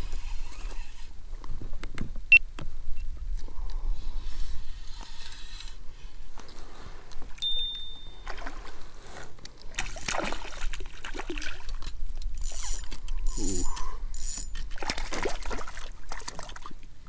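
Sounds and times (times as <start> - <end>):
fish splashing at water surface: 9.7 - 11.8, 14.7 - 16.7.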